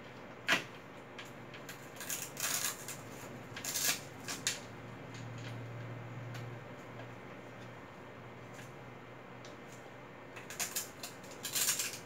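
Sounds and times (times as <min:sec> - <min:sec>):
plastic parts rustling and clicking: 0:10.4 - 0:12.0.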